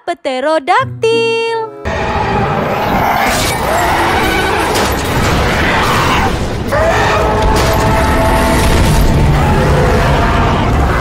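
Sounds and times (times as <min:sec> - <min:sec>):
dramatic film music: 0:01.7 - 0:11.0
creature rising screech: 0:01.9 - 0:11.0
low rumbling and booms: 0:03.9 - 0:11.0.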